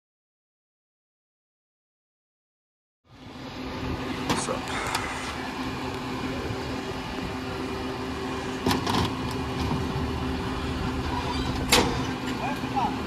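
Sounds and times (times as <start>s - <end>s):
garbage truck idling: 3.2s - 13.0s.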